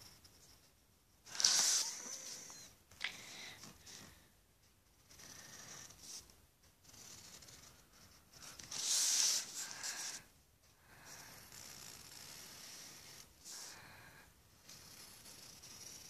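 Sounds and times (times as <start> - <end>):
drawing tool scratching on paper: 0.0 - 0.6, 1.2 - 2.7, 4.9 - 13.9, 14.6 - 16.0.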